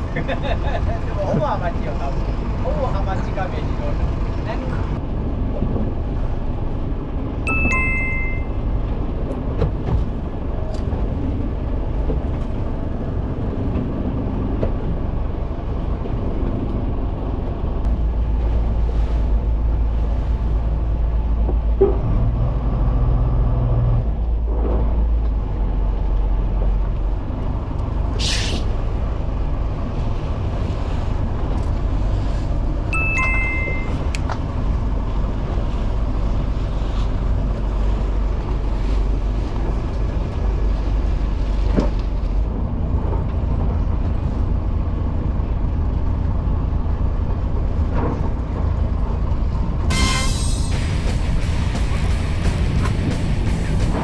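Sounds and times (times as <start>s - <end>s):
boat engine running: 0.0s - 49.9s, 50.7s - 54.0s
water noise: 0.0s - 54.0s
wind: 0.0s - 54.0s
short ringing chime: 7.5s - 8.6s, 32.9s - 34.0s
brief hiss or splash: 28.2s - 28.7s.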